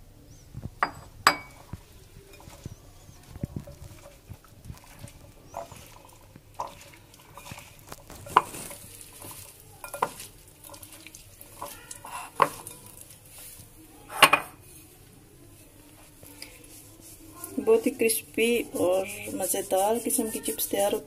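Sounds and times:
clinks against ceramic plate: 0.8s - 1.6s, 9.8s - 10.2s
wet squishing of mixing: 1.2s - 21.0s.

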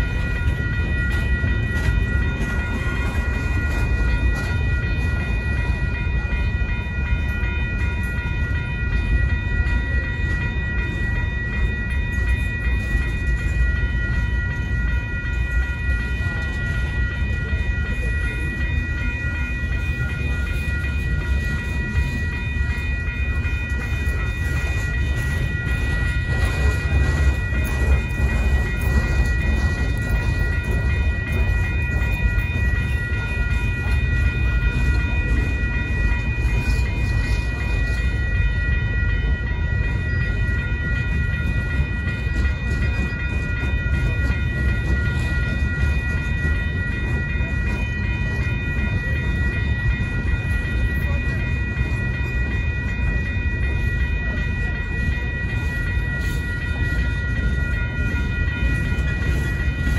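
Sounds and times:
steady high ringing tones: 0.0s - 59.9s
train wheels rumbling on rail: 0.0s - 59.9s.

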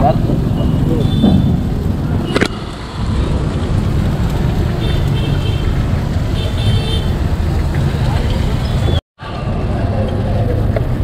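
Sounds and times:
road traffic rumble: 0.0s - 11.0s.

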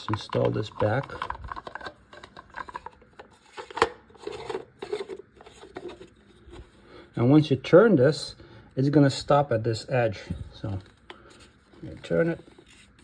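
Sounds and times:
plastic clicking and scraping: 0.0s - 6.6s.

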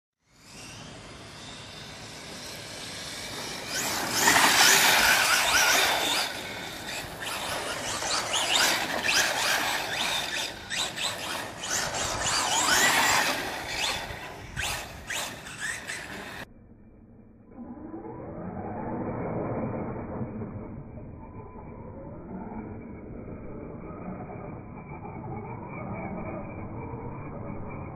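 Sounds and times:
rc car electric motor whining: 0.2s - 16.5s.

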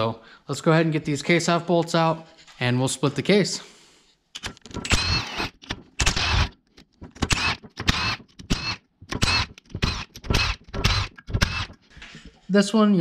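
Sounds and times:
power wrench whining: 4.4s - 12.1s.

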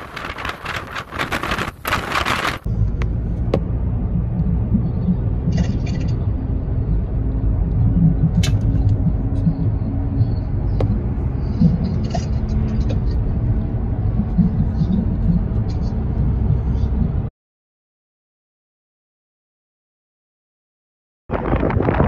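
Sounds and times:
car engine and tyre rumble: 0.0s - 17.3s.

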